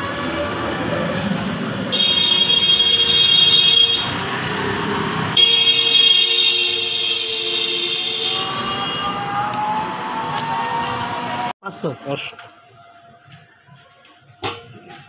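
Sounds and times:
street noise: 0.0s - 15.0s
vehicle horn blasts: 1.9s - 4.2s, 5.4s - 9.3s.

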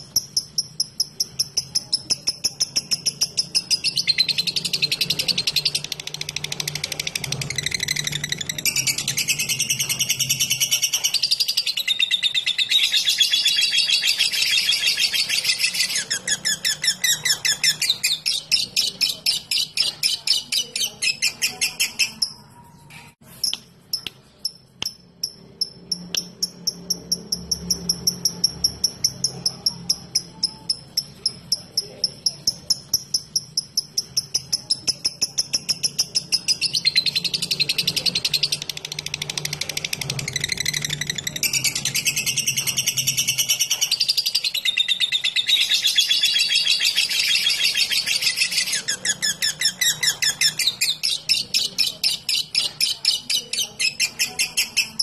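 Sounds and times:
bird chattering: 0.0s - 22.6s, 23.3s - 55.0s
bird ticking notes: 23.4s - 55.0s.

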